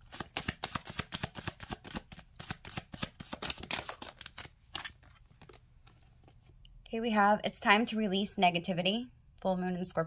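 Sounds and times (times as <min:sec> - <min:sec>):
cards being shuffled: 0:00.0 - 0:06.6.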